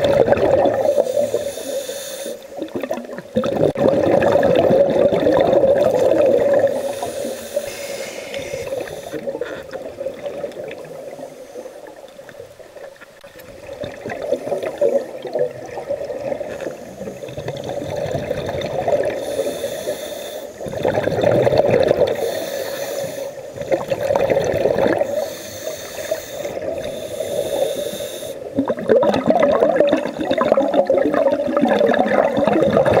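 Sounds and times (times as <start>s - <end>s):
bubbling exhalations underwater: 0.0s - 1.3s, 2.6s - 7.0s, 13.6s - 19.2s, 20.6s - 22.3s, 23.6s - 25.2s, 28.4s - 33.0s
diver inhaling through regulator: 0.7s - 2.6s, 6.5s - 9.4s, 19.1s - 20.9s, 21.9s - 23.7s, 24.9s - 28.5s.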